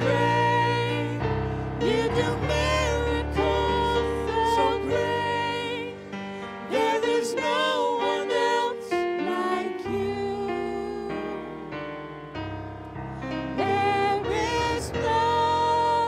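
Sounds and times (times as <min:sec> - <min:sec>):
woman and man singing: 0:01.8 - 0:06.0, 0:13.6 - 0:16.0.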